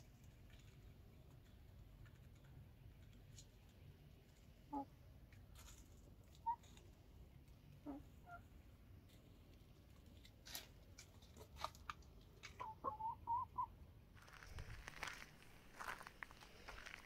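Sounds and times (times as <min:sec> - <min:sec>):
chickens clucking: 0:04.4 - 0:08.6, 0:11.0 - 0:13.8
crunching on gravel: 0:14.2 - 0:17.0.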